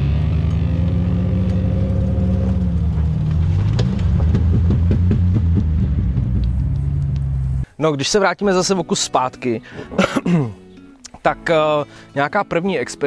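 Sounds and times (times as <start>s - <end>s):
engine revving under load: 0.0s - 7.6s.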